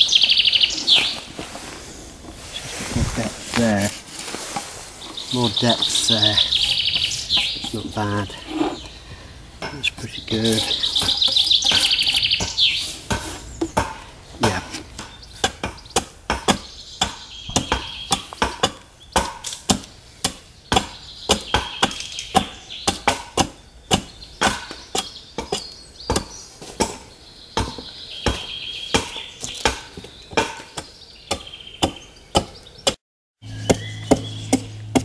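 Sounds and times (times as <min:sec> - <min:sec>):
adze chopping wood: 0:09.6 - 0:35.0.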